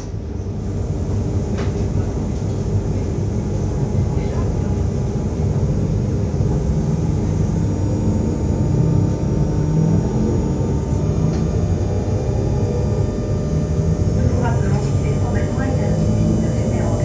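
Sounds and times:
train equipment low rumble: 0.0 - 17.0.

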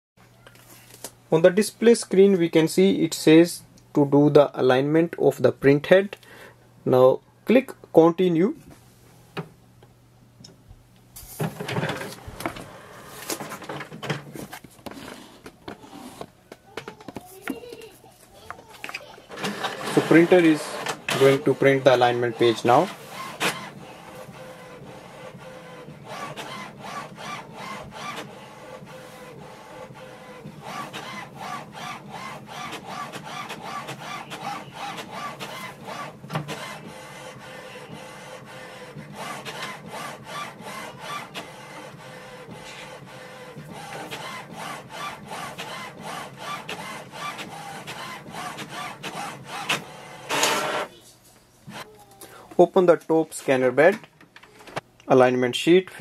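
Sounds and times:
inkjet printer printing: 11.3 - 51.0, 51.6 - 51.9
short printer clicks: 19.3 - 23.8, 30.6 - 37.0, 43.8 - 50.9.

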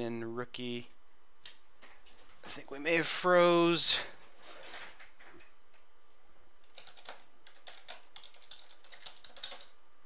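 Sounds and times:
computer keyboard typing: 6.6 - 9.7.

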